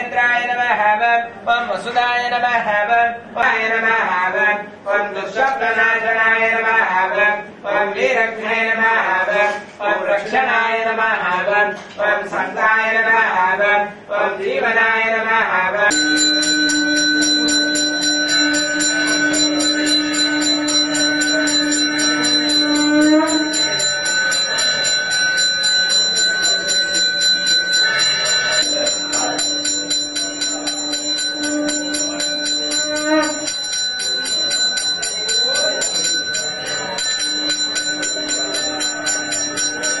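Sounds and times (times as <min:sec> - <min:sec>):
hand bell ringing rapidly: 0:15.9 - 0:40.0
low steady tone: 0:15.9 - 0:40.0.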